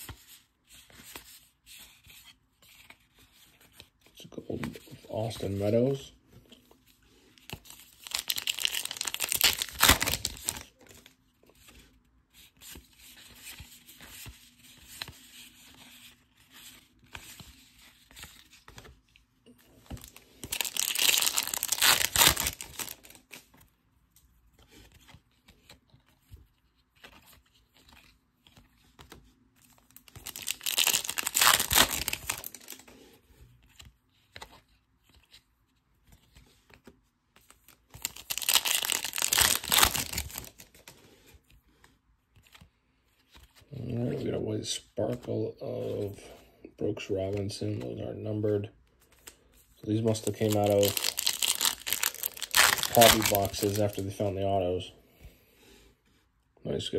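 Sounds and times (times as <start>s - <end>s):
cards rustling: 0.0s - 46.3s, 47.0s - 56.2s
foil packs tearing open: 8.0s - 10.7s, 20.0s - 23.2s, 30.2s - 32.8s, 38.0s - 40.6s, 50.0s - 54.0s.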